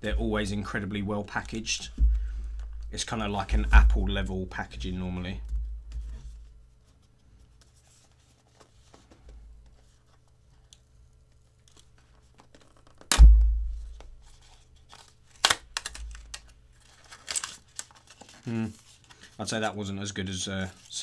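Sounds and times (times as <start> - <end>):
loud thump with low boom: 1.9 - 2.5, 13.1 - 14.2.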